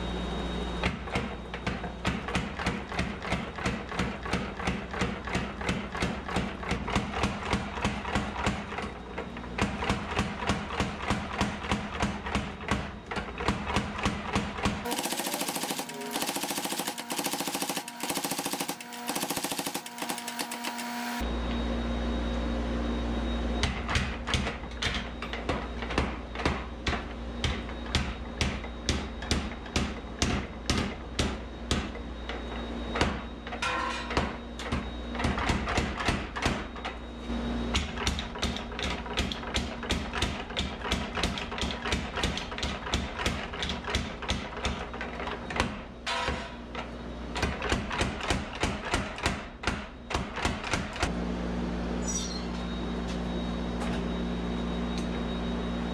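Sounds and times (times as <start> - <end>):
power hammer striking steel: 0.8 - 21.2, 23.6 - 37.0, 37.7 - 46.6, 47.4 - 51.1.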